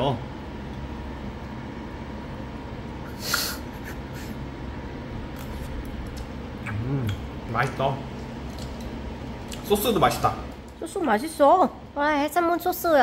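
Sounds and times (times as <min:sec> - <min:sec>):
low room hum: 0:00.0 - 0:13.0
man sniffing: 0:03.1 - 0:04.4.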